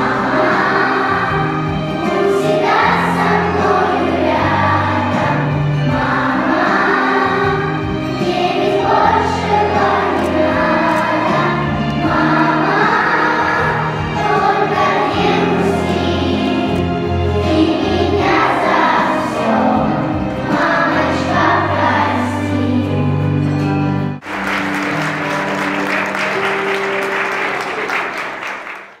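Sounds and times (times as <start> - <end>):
choir singing: 0.0 - 23.4
backing music: 0.0 - 29.0
clapping applause: 24.2 - 29.0.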